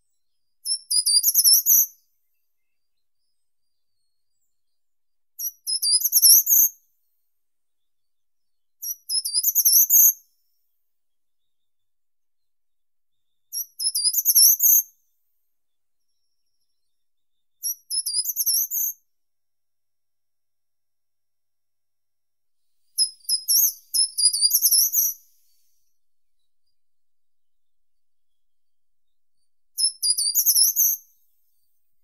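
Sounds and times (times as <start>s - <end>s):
bird singing high-pitched phrases: 0.6s - 2.0s, 5.4s - 6.7s, 8.8s - 10.2s, 13.5s - 14.8s, 16.0s - 19.0s, 22.9s - 26.8s, 29.1s - 31.7s.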